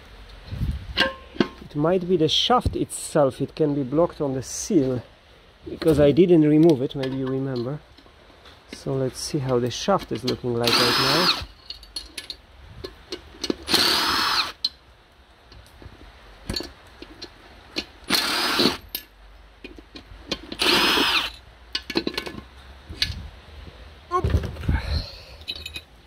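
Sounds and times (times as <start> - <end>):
handling clicks and knocks: 5.8 - 8.1, 8.7 - 10.8, 15.5 - 18.0, 18.9 - 20.6, 21.3 - 23.2
cordless driver whining: 10.6 - 11.5, 13.7 - 14.6, 18.1 - 18.8, 20.6 - 21.3.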